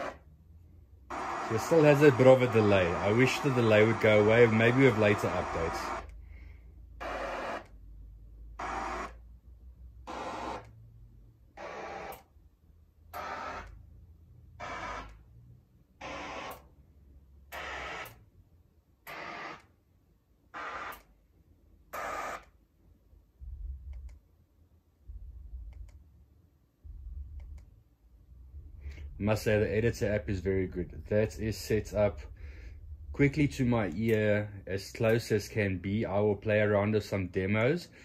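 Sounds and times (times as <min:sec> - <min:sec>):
deep rumbling subwoofer bursts: 0:23.4 - 0:24.0, 0:25.0 - 0:25.8, 0:26.8 - 0:27.6, 0:28.2 - 0:34.0.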